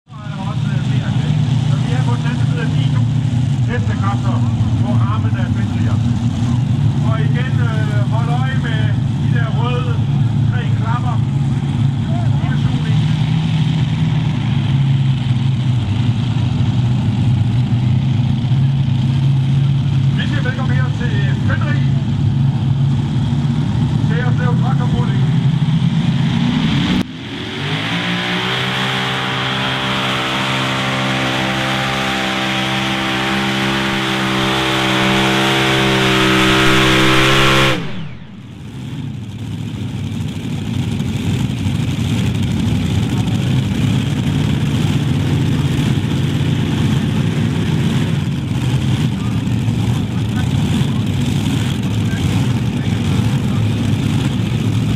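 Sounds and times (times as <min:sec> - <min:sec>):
tractor engines idling: 0:00.0 - 0:54.9.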